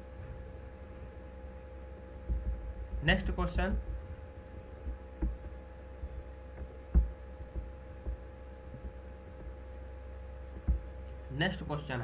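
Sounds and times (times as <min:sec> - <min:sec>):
soft low thumps: 0:00.0 - 0:11.2
steady electrical hum: 0:00.0 - 0:12.0.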